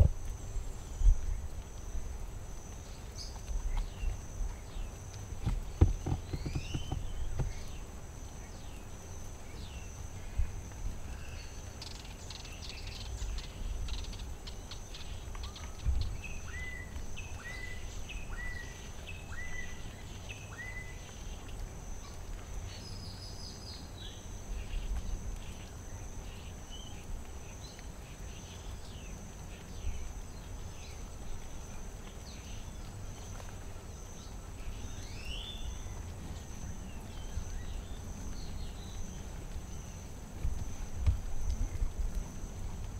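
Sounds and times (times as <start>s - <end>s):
birds chirping and calling: 4.8s - 7.9s.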